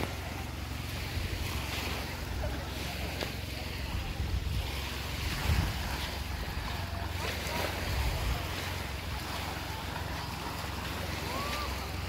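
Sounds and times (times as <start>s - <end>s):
wind rushing over microphone: 3.8s - 6.7s.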